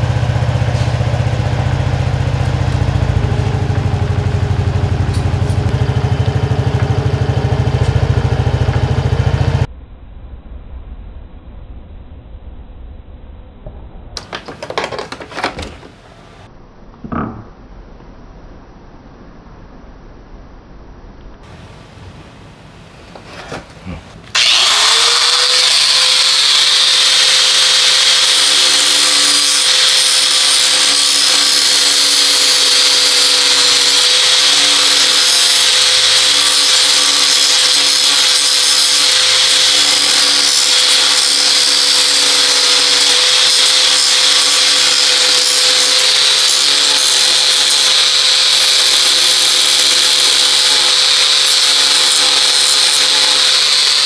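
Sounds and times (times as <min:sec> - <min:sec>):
electric power tool whining: 0:00.0 - 0:09.7, 0:14.2 - 0:16.0, 0:24.2 - 0:54.0.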